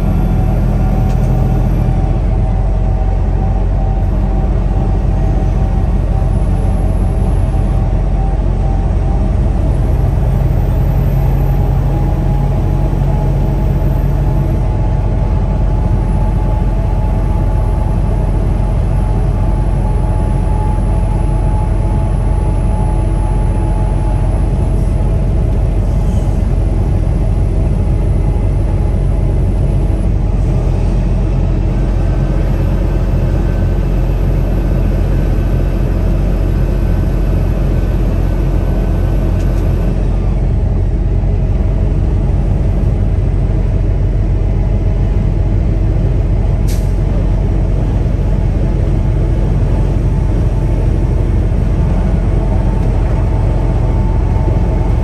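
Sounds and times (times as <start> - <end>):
road noise: 0.0 - 55.0
truck engine drone: 0.0 - 55.0.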